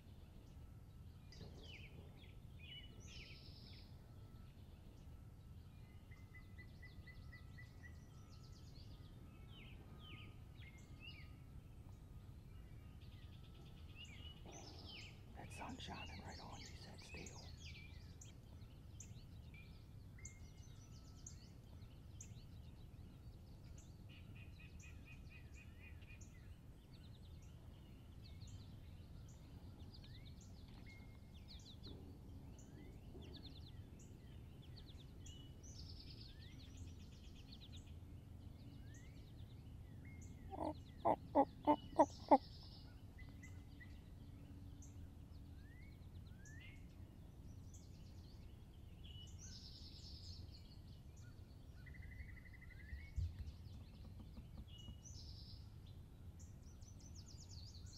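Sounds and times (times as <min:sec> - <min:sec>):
songbirds chirping: 0:00.0 - 0:57.9
turkey gobbling: 0:40.5 - 0:42.4.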